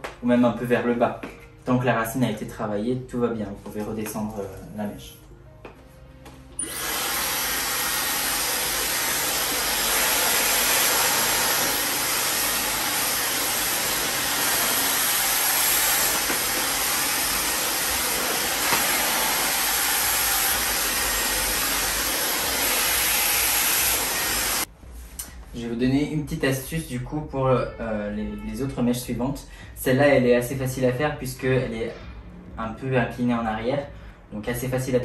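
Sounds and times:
hair dryer blowing: 6.6 - 24.7.

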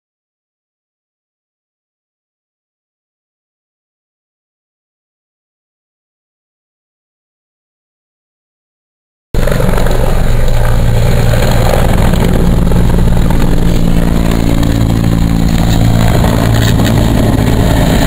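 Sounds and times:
helicopter flying overhead: 9.4 - 18.0.

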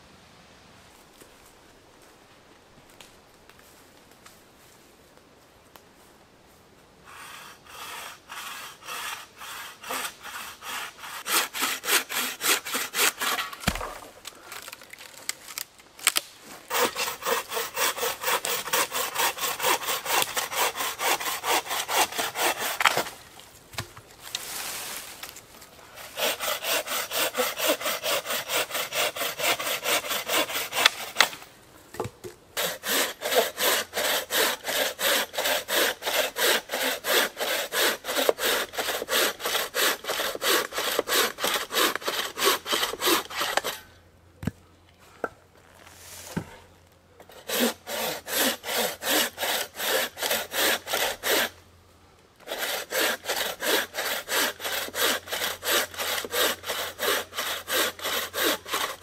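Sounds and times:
bow saw cutting logs: 7.1 - 25.4, 26.0 - 43.9, 47.2 - 51.6, 52.4 - 59.0.

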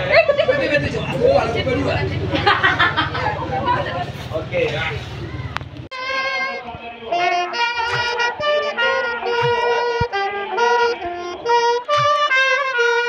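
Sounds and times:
saxophone: 5.9 - 13.0
trumpet: 5.9 - 13.0.

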